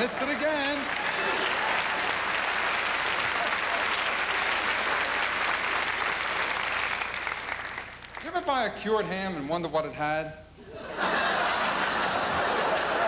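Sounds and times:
audience laughing: 0.0s - 5.3s, 10.7s - 13.0s
audience applauding: 0.0s - 8.4s, 12.3s - 13.0s.

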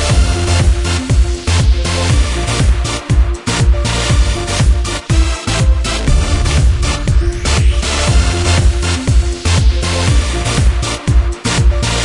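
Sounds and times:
electronic dance music: 6.1s - 9.4s.

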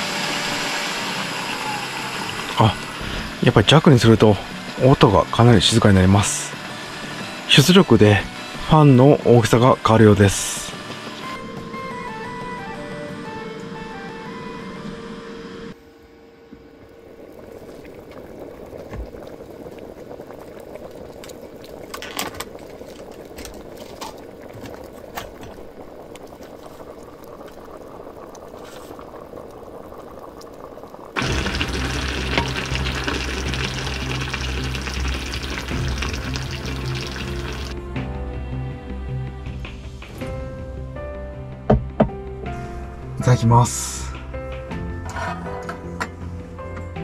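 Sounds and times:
hot pot bubbling: 0.0s - 11.9s, 16.6s - 37.8s
background music: 0.0s - 15.8s, 31.2s - 47.0s.

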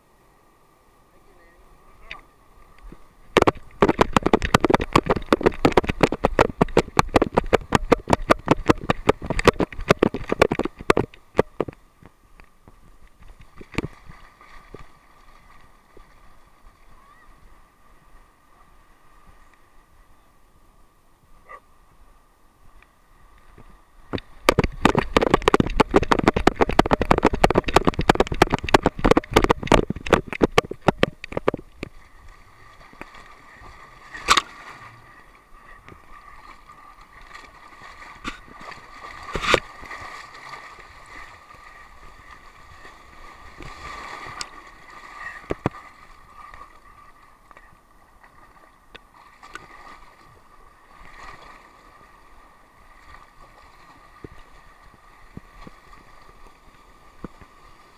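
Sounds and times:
water sloshing and gurgling: 1.8s - 19.8s, 22.7s - 57.9s
rapid knocks and splashes: 2.9s - 11.8s, 13.2s - 16.2s, 24.1s - 35.0s, 37.2s - 41.4s, 42.7s - 46.7s.

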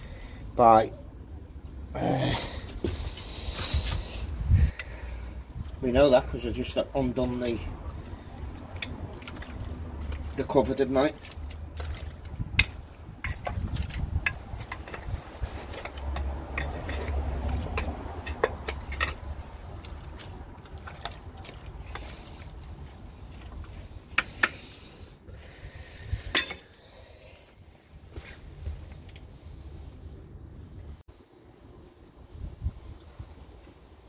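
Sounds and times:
sewage water sloshing: 1.2s - 25.3s
rod scraping in manhole channel: 6.6s - 22.8s.

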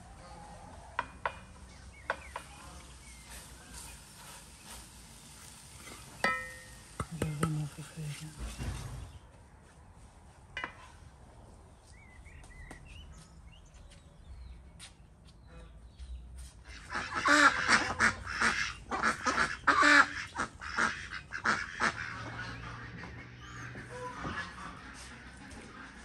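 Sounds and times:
faint chirps: 0.0s - 9.1s
ducks quacking: 16.6s - 26.0s.

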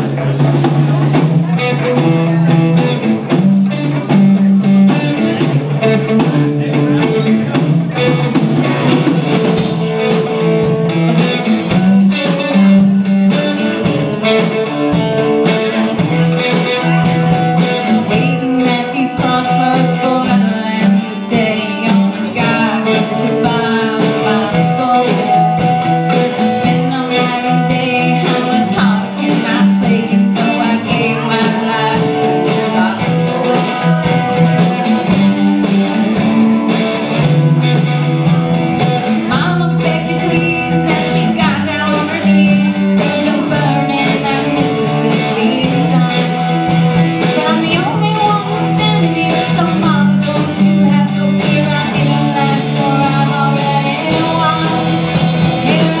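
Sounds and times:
live rock band playing: 0.0s - 56.0s
woman singing into microphone: 16.8s - 35.3s, 39.0s - 56.0s.

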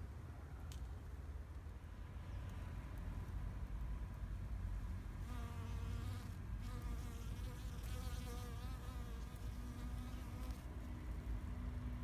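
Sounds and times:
bee buzzing: 5.2s - 10.7s.

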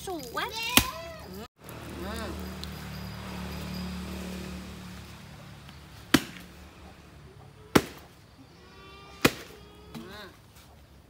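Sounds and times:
coconut struck with knocks: 6.1s - 6.5s, 7.7s - 8.2s, 9.2s - 9.5s.

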